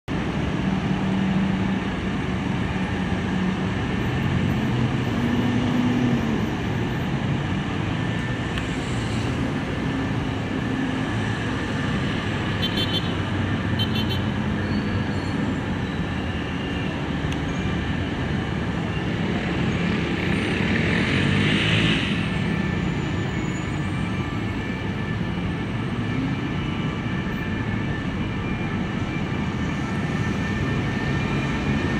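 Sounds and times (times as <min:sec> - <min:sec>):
road traffic rumble: 0:00.1 - 0:31.9.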